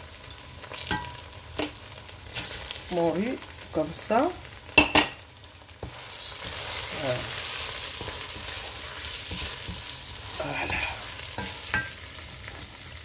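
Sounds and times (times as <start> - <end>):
onions sizzling in a frying pan: 0.0 - 13.0
spatula scraping rice grains: 5.8 - 11.7.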